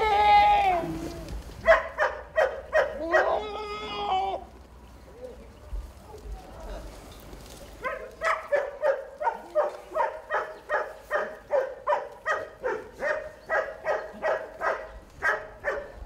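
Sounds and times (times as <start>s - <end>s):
dog barking: 1.6s - 3.4s, 7.8s - 16.0s.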